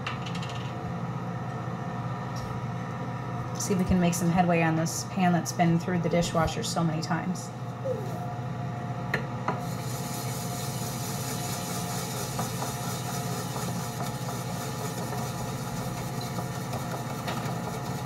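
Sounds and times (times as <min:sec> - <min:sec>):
brush scrubbing a saucepan: 0:09.8 - 0:18.0.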